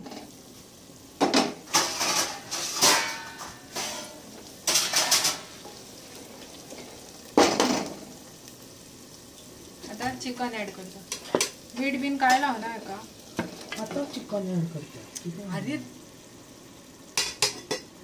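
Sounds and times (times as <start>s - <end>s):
cookware clatter: 1.2s - 5.6s, 11.1s - 11.6s, 17.2s - 17.9s.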